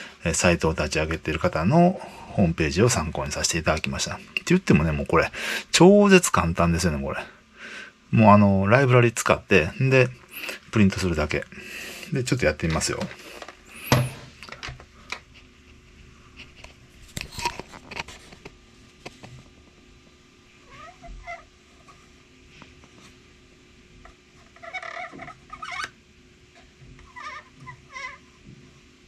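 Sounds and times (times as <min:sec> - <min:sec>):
short pitched cries: 0:20.7 - 0:21.5.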